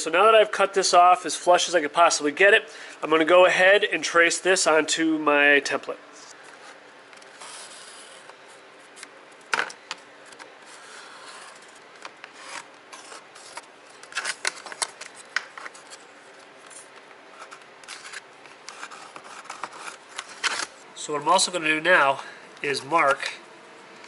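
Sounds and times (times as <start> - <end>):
marker scratching on paper: 7.4 - 8.2.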